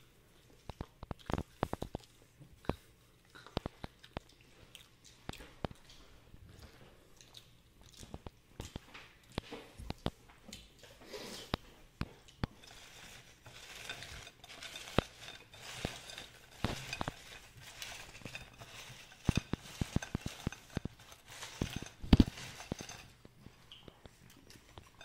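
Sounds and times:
fries clicking against bowl: 11.5 - 25.0
hand rummaging through french fries: 12.5 - 23.3.

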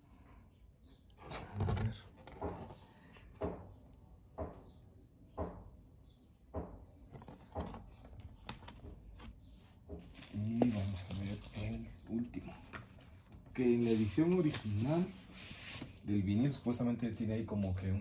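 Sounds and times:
vinyl records and sleeves handled: 1.2 - 2.8, 10.0 - 12.0, 13.7 - 15.9.

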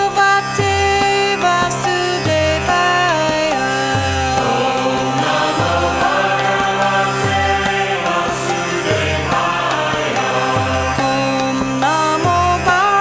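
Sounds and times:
voices chanting: 4.1 - 11.7
sustained drone tones: 4.1 - 11.9.

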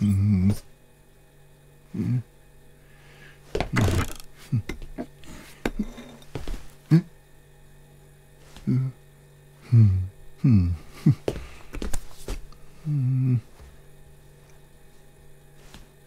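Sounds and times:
wordless voice sounds: 0.0 - 0.7.

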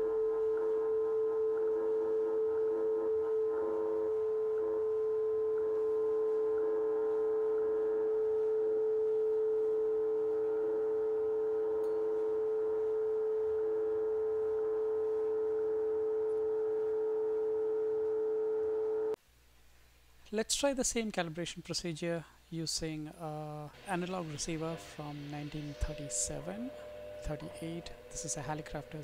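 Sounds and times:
faint higher tones: 0.0 - 19.2, 23.2 - 29.0
steady pure radio tone: 23.7 - 29.0.

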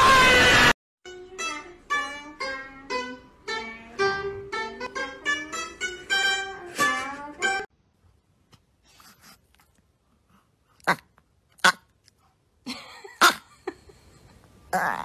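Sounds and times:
loud burst of noise: 0.0 - 0.8.

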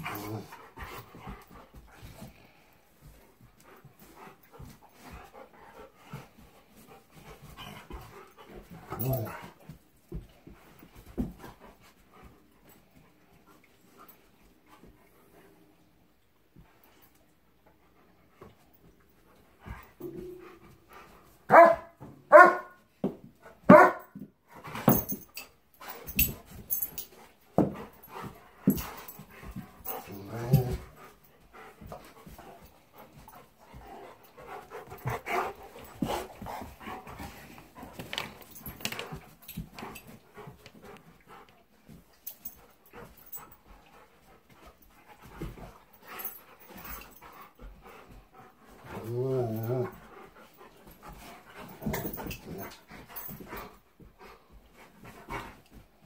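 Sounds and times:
dogs barking: 21.5 - 22.8, 23.7 - 24.1.

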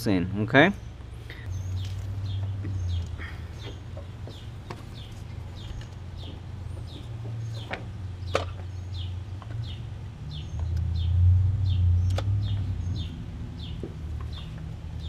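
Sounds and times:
birds chirping: 0.0 - 15.0
sharp clicks: 12.0 - 12.3.

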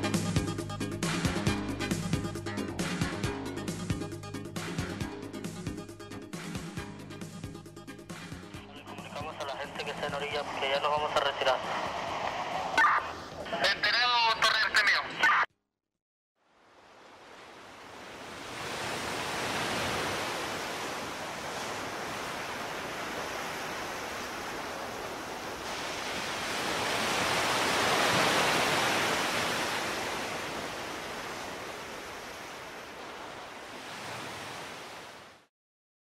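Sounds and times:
ocean surf on beach: 8.6 - 15.0, 16.4 - 35.5.

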